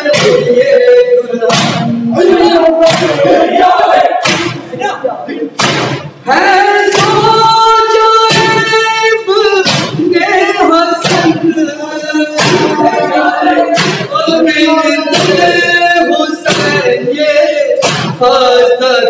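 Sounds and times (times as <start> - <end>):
man singing a lament: 0.0 - 4.2, 6.2 - 19.0
men beating their chests: 0.0 - 18.8.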